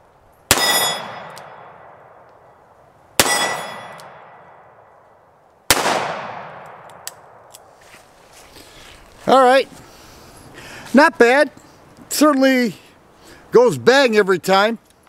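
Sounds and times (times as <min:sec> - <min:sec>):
revolver shots echoing: 0:05.7 - 0:07.4.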